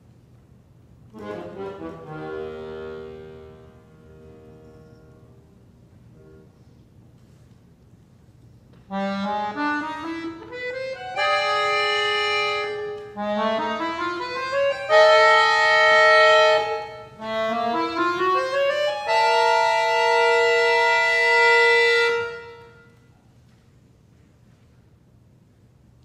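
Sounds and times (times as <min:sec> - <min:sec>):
accordion playing: 0:01.1 - 0:06.5, 0:08.9 - 0:23.0.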